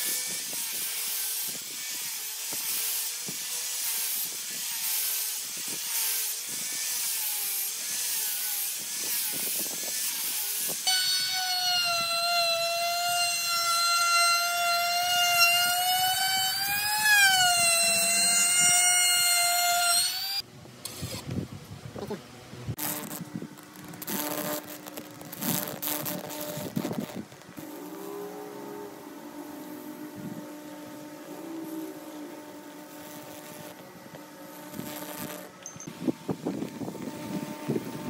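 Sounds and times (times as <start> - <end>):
angle grinder sanding wood: 0.0 - 20.4
router high-pitched whine: 0.0 - 20.4.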